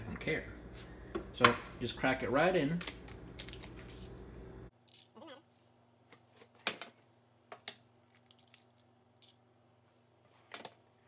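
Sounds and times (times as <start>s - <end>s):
egg shell cracking: 7.6s - 9.4s.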